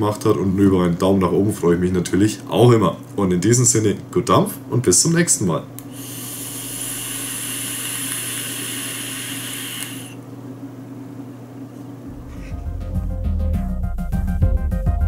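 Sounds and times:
e-cigarette drag hiss: 0:05.9 - 0:10.2
music: 0:12.1 - 0:15.0.

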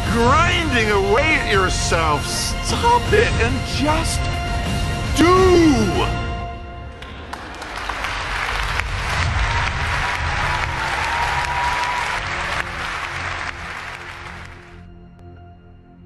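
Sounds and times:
soft background music: 0:00.0 - 0:07.9
audience applauding: 0:06.9 - 0:14.9.

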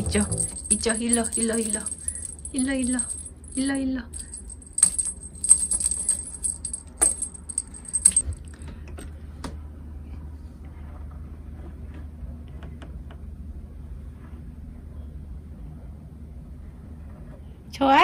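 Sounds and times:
small metal bell jingling: 0:00.0 - 0:08.3
low steady hum: 0:00.0 - 0:09.1.

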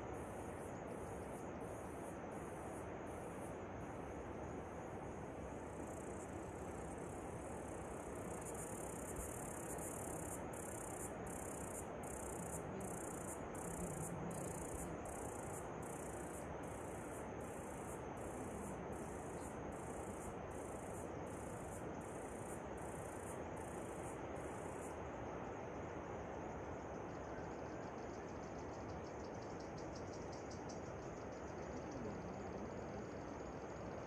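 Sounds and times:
insect calling in high pulses: 0:07.4 - 0:24.9, 0:27.1 - 0:34.0.

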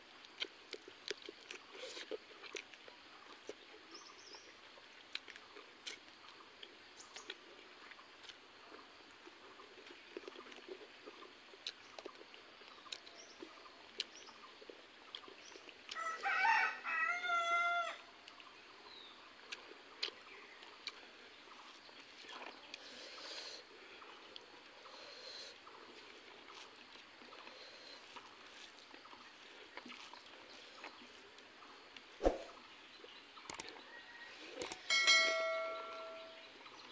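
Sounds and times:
soft eating smacks and clicks: 0:00.1 - 0:04.0, 0:04.7 - 0:16.0, 0:18.2 - 0:32.1, 0:33.0 - 0:34.8
rooster crowing: 0:16.0 - 0:18.1, 0:33.8 - 0:36.3.

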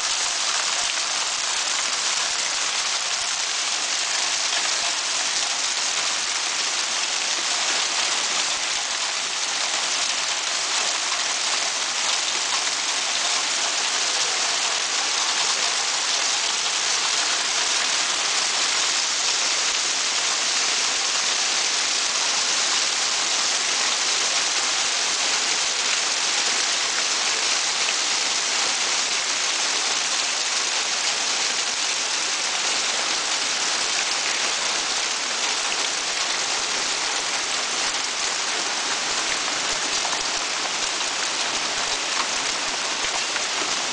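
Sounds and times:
hail and heavy rain: 0:00.0 - 0:43.9.

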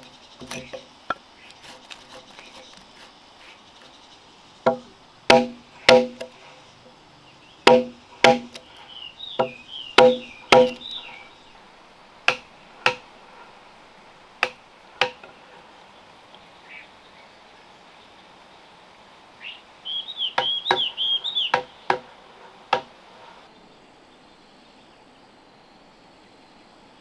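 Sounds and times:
bird chirping: 0:00.0 - 0:12.8, 0:19.4 - 0:22.6
chisel knocking into wood: 0:04.7 - 0:06.3, 0:07.7 - 0:08.6, 0:09.4 - 0:10.8.

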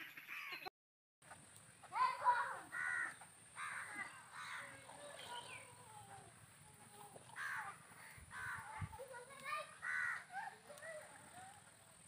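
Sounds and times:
crows cawing: 0:02.4 - 0:05.8, 0:07.2 - 0:08.9, 0:09.6 - 0:11.1.

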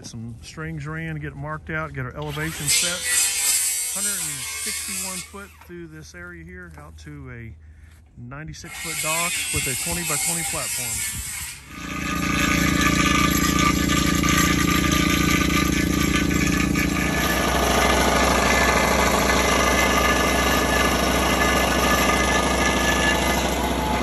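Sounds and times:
construction machine engine running: 0:11.7 - 0:24.0.

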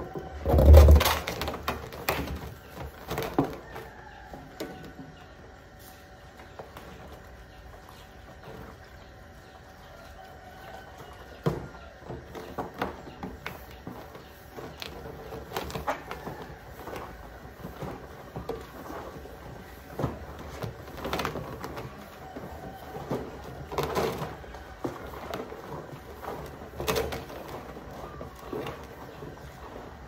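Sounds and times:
plastic drum scrubbing and scraping: 0:00.0 - 0:03.6, 0:11.1 - 0:30.0.

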